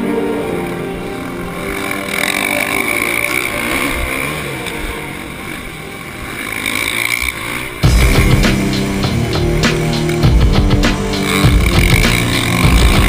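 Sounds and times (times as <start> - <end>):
motocross bike engine running: 0.0 - 13.0.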